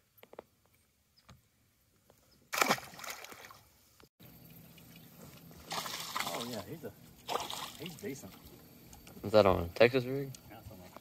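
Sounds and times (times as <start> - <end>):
light water noise: 0.0 - 9.6
fish splashing into water: 2.5 - 3.7, 5.6 - 6.6, 7.2 - 8.0
faint steady hum: 3.4 - 11.0.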